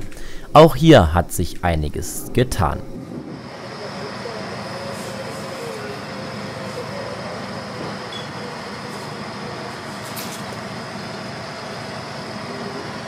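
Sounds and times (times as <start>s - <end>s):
electric train rolling past: 3.0s - 9.8s.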